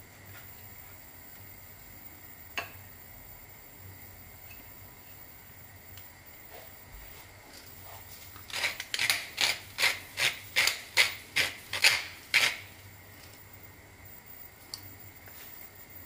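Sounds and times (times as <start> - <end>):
pepper mill grinding: 8.4 - 12.7.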